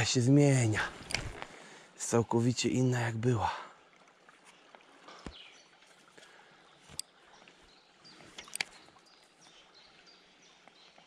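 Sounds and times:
river current rushing: 0:00.0 - 0:02.2
sharp clicks: 0:01.0 - 0:01.5, 0:08.4 - 0:08.8.

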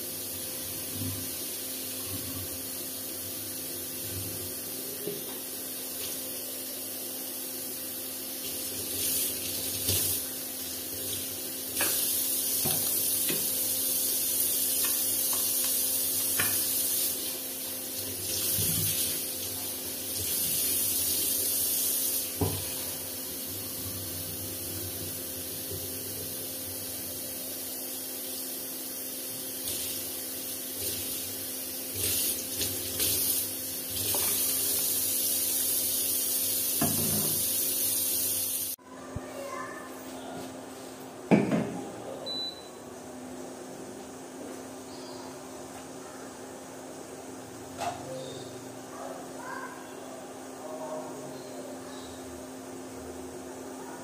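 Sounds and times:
tap water running into sink: 0:08.4 - 0:10.3, 0:10.9 - 0:13.6, 0:14.2 - 0:22.9, 0:30.7 - 0:38.2.

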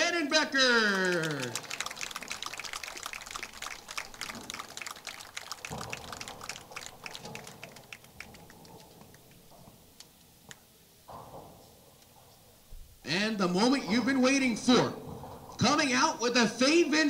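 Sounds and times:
small crowd applause: 0:00.6 - 0:09.6.

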